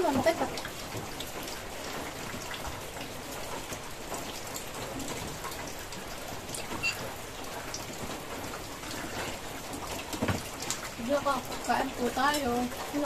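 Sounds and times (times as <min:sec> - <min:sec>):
rain on a corrugated roof: 0:00.0 - 0:13.0.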